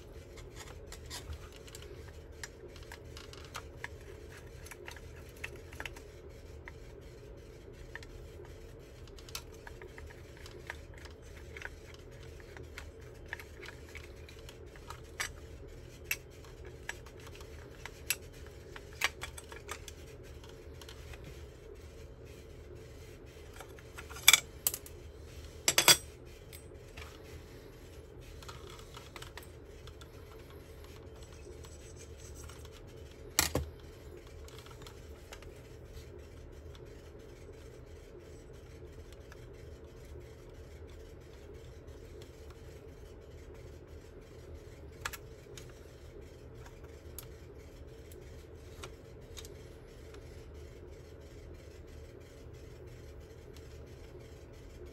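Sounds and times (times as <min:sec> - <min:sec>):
tools clicking and scraping: 0:24.0 - 0:25.0, 0:25.6 - 0:27.2.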